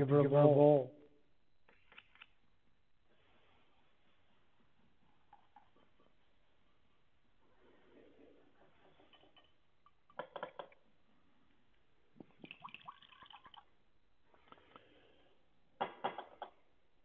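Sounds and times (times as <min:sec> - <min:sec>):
liquid trickling: 0:12.2 - 0:13.7.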